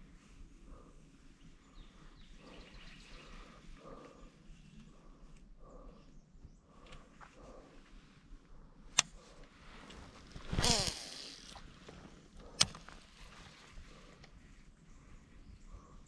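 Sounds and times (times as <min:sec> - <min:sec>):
spool whirring: 0:10.5 - 0:11.6
fishing reel click: 0:10.6 - 0:11.6.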